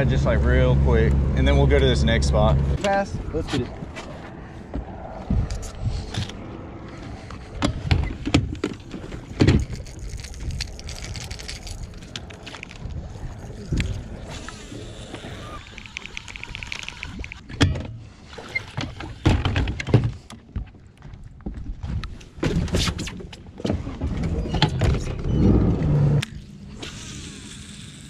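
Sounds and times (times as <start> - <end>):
fishing reel ticking: 15.5 - 17.4.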